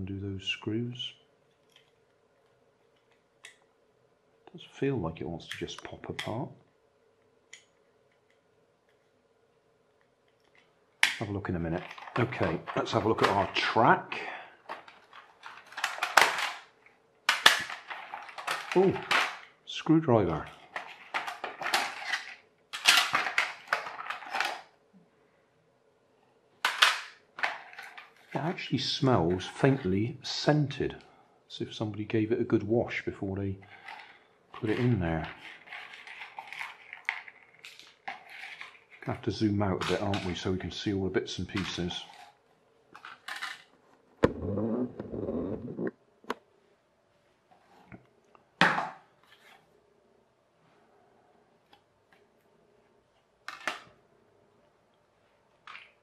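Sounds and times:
plastic parts clattering in box: 11.7 - 13.8, 14.6 - 16.7, 17.3 - 19.5, 20.4 - 24.7, 26.6 - 28.4, 33.7 - 39.1, 43.0 - 43.7.

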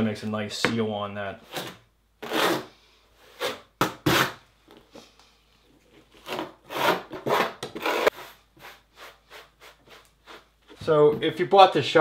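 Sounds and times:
trowel scraping mortar: 1.4 - 4.4, 6.2 - 10.8.

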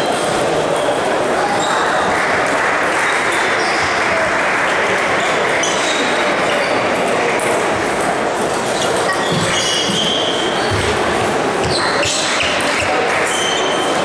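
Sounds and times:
ping-pong balls bouncing: 7.4 - 13.7.

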